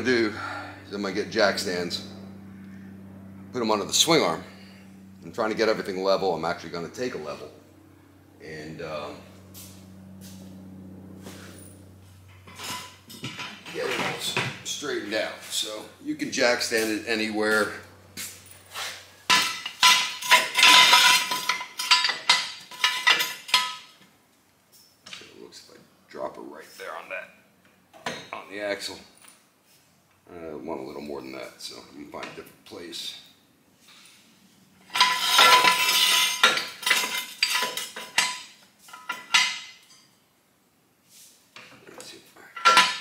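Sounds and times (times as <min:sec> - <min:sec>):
metallic clatter: 0:09.2 - 0:14.9, 0:16.6 - 0:24.0, 0:34.8 - 0:40.1, 0:42.4 - 0:43.0
jack stand clanking on concrete: 0:19.3 - 0:23.9, 0:42.6 - 0:43.0
ringing clanks of metal on metal: 0:19.3 - 0:24.0, 0:34.9 - 0:40.1, 0:42.5 - 0:43.0.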